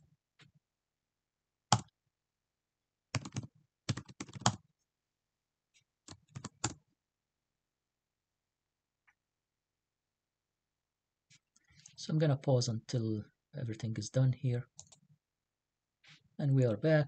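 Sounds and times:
typing on a computer keyboard: 3.2s - 4.6s, 6.1s - 6.8s, 14.8s - 15.0s.

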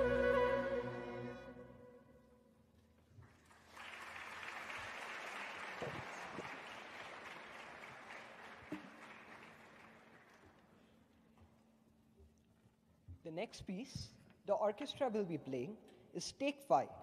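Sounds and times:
orchestra chord: 0.0s - 2.0s
audience applauding: 3.3s - 10.6s.

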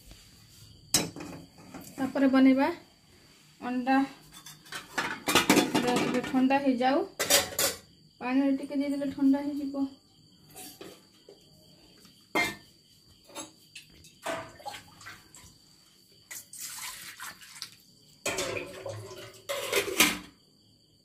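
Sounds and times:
water splashing and pouring: 14.2s - 15.6s, 16.3s - 19.5s.

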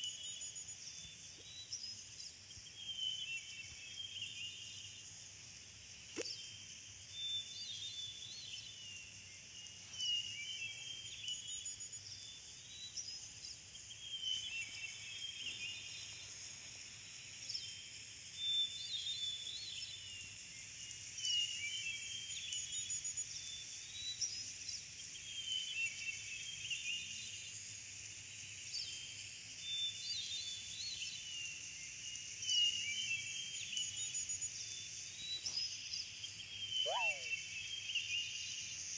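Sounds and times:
small birds chirping: 32.7s - 38.9s.

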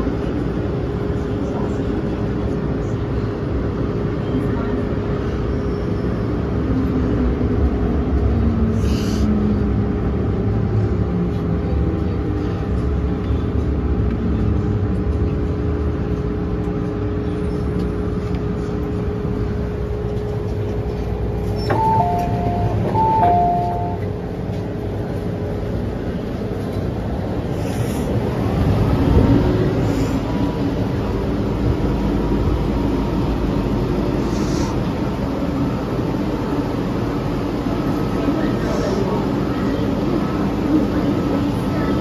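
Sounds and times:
train rumble: 0.0s - 42.0s
two-note door chime: 21.7s - 24.0s.

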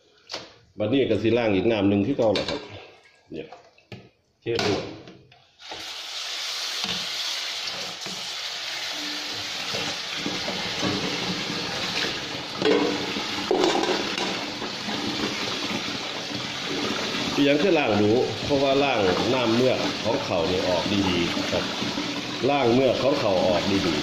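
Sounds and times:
tap water running into pot: 5.6s - 24.0s
metal pots knocking: 9.7s - 22.5s.

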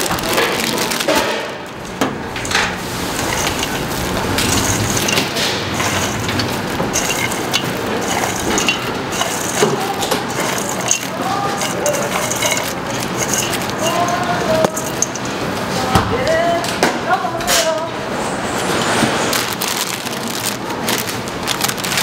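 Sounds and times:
hot oil crackling and sizzling: 2.8s - 15.2s.

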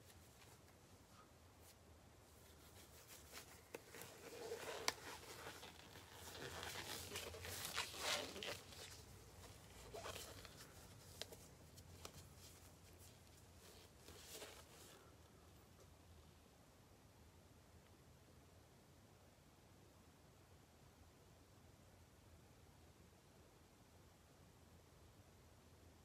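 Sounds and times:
rustling and crinkling: 0.0s - 15.9s.

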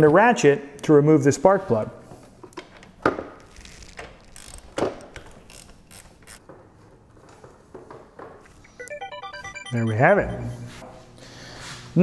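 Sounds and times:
ratchet clicking: 4.3s - 6.4s.

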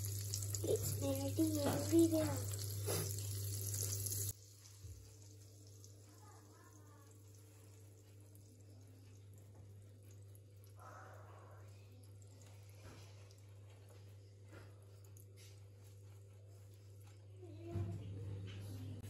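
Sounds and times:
butter sizzling: 0.0s - 10.8s.

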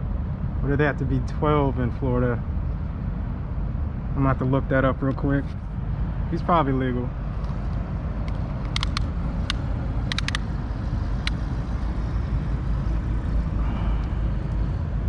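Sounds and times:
tape measure clicks: 8.5s - 10.5s.

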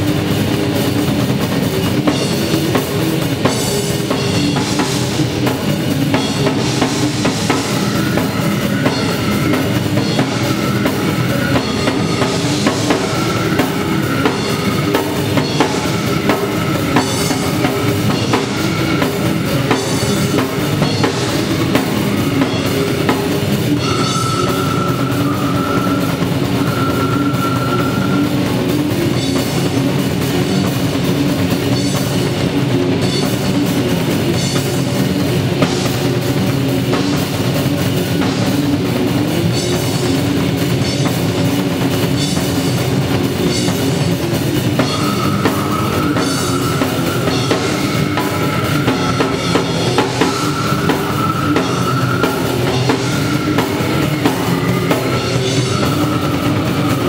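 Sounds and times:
death metal band playing live: 0.0s - 57.0s
drums pounding: 0.0s - 57.0s
held high note: 23.7s - 28.5s.

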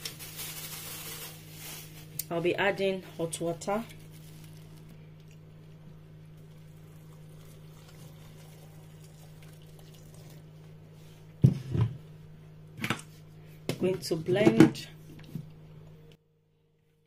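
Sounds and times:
hot water pouring into blender jar: 6.4s - 10.5s.

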